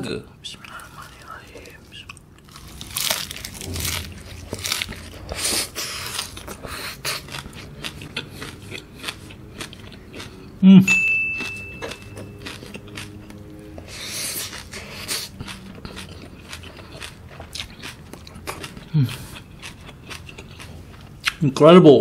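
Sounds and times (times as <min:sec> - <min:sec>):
wet crunchy chewing: 0:00.7 - 0:10.6, 0:11.4 - 0:21.4
steady high beep: 0:10.9 - 0:12.4.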